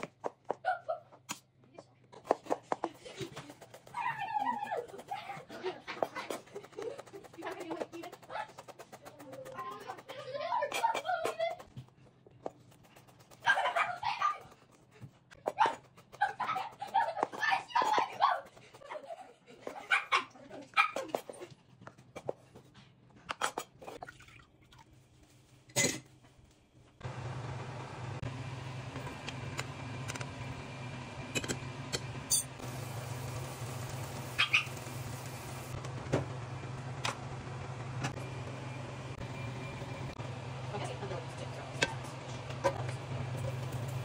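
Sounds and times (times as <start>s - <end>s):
dog barking and whining: 13.4s - 14.6s, 15.4s - 18.5s, 19.7s - 21.2s, 34.4s - 34.8s
stock boiling in a saucepan: 27.0s - 44.0s.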